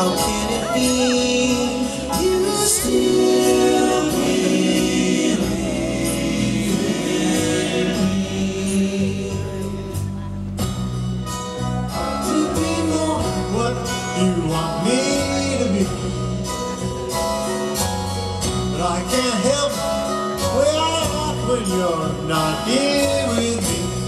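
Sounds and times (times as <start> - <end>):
person singing: 0.0 - 10.2, 12.0 - 16.6
bass guitar: 0.0 - 24.0
drums: 0.0 - 24.0
grand piano: 0.0 - 24.0
keyboards: 0.0 - 24.0.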